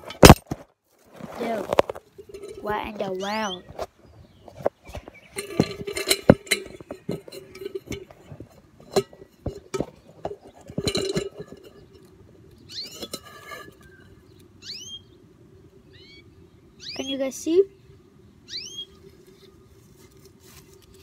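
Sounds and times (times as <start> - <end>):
bird chirps: 3.0 - 5.4, 12.6 - 13.0, 13.7 - 15.2, 15.8 - 19.6.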